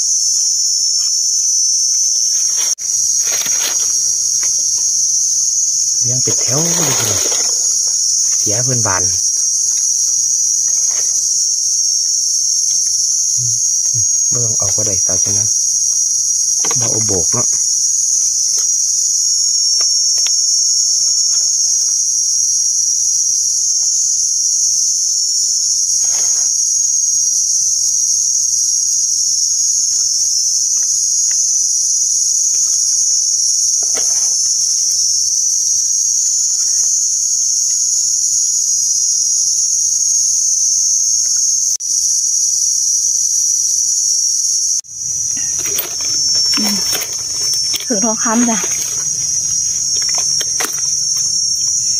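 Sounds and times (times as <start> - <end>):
insect chorus drone: 0.0 - 51.9
leaf litter rustling: 2.2 - 8.4, 44.9 - 51.9.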